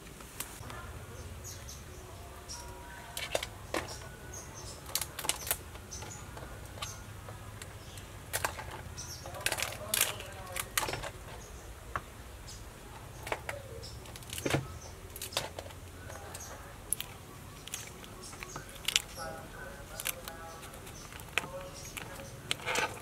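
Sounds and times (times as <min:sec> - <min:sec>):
crab shells cracking: 0:04.8 - 0:06.8, 0:07.6 - 0:11.2, 0:13.3 - 0:23.0.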